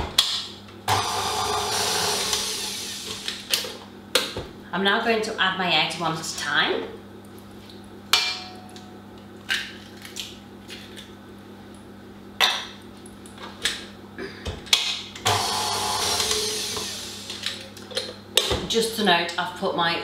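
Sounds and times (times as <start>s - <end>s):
stand mixer running: 0.8s - 3.5s, 15.2s - 17.8s.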